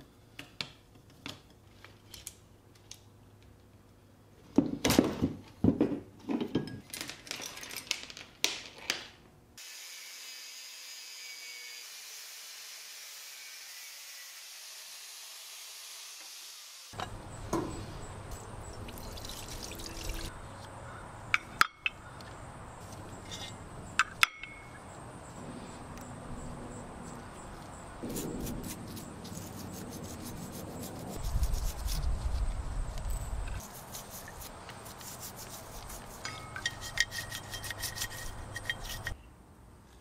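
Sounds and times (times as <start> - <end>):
liquid splashing and dripping: 18.8 - 20.3
toothbrush scrubbing gears: 33.6 - 39.2.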